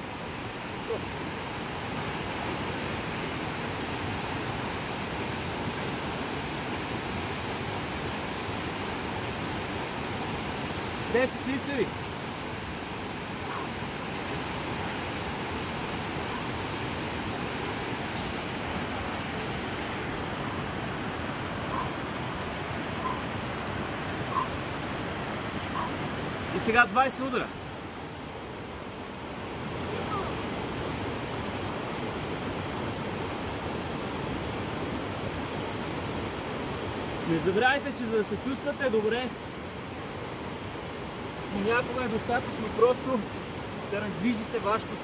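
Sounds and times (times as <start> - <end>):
rushing mountain stream: 0.0 - 45.0.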